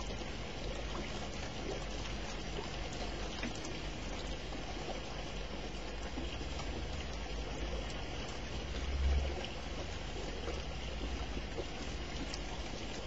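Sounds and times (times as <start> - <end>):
rain hissing: 5.8 - 13.0.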